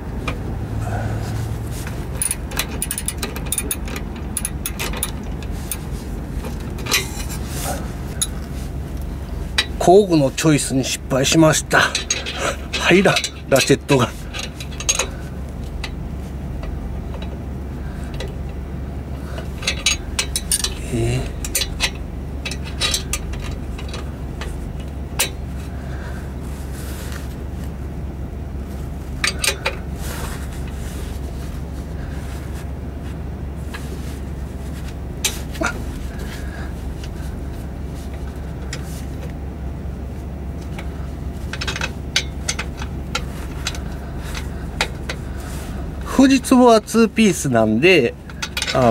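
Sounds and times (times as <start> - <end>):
steady low hum: 0.0 - 48.9
wrench clinking against bolts: 2.2 - 5.9, 6.8 - 7.3, 11.6 - 15.2, 19.4 - 25.4, 41.5 - 45.2, 48.2 - 48.9.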